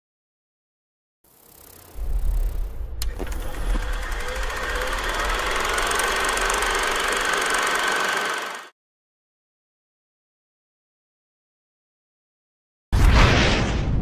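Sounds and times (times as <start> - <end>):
film projector clatter: 1.3 - 8.8
steady high tone: 1.8 - 8.7.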